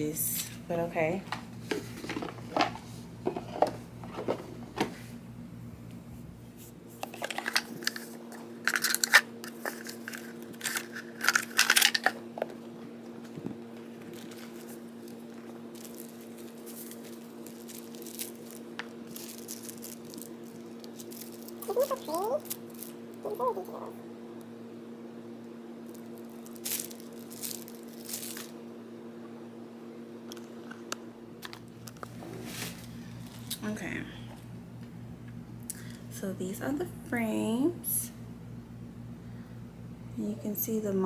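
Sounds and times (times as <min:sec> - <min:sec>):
paper and plastic wrap crinkling: 0:07.0 - 0:12.2, 0:13.2 - 0:23.6, 0:25.9 - 0:28.6.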